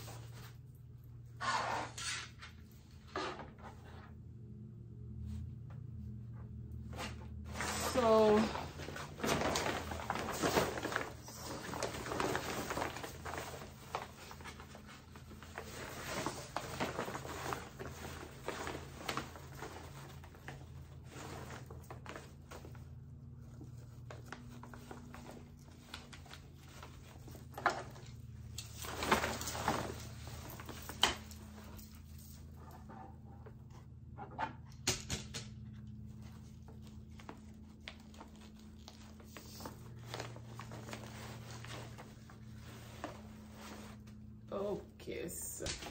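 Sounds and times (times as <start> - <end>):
fabric rustling and swishing: 6.8 - 22.8, 36.3 - 44.6.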